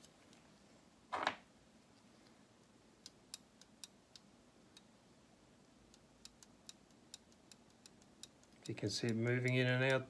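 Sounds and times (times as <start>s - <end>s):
faint clock movement clicks: 0.0s - 0.5s, 2.0s - 5.0s, 5.6s - 10.0s.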